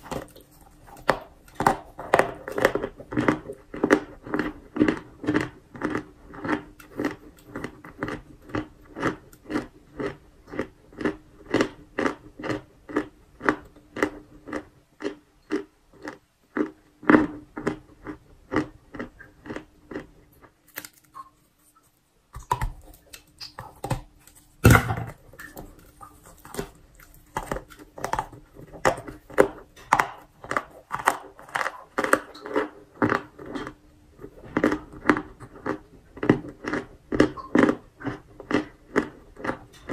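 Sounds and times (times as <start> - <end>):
crunchy chewing of chalk: 0.0 - 39.9
loud crunching bite: 22.4 - 33.8.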